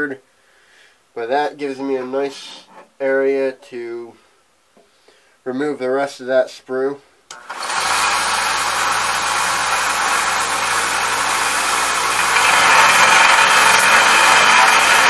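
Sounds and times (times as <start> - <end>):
belt sander motor hum: 7.3 - 15.0
sander grinding metal: 7.3 - 15.0.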